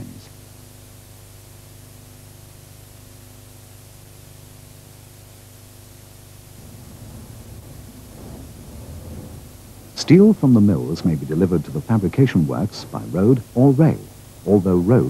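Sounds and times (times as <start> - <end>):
soundtrack hiss: 0.0 - 15.0
low hum: 6.0 - 14.5
uneven low rumble: 6.3 - 14.3.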